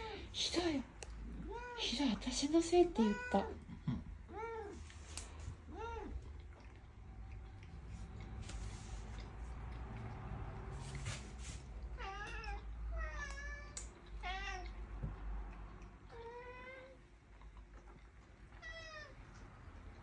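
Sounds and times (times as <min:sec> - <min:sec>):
cats meowing: 0:11.9 - 0:14.8, 0:18.5 - 0:19.4.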